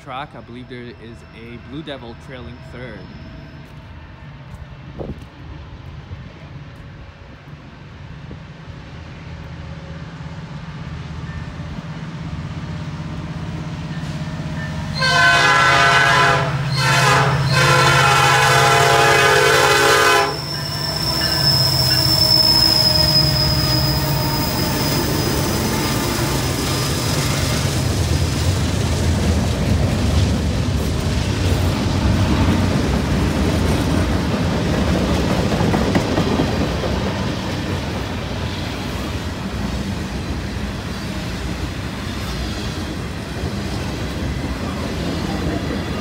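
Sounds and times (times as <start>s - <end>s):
diesel locomotive rumble: 0.0s - 46.0s
train air horn: 14.9s - 24.6s.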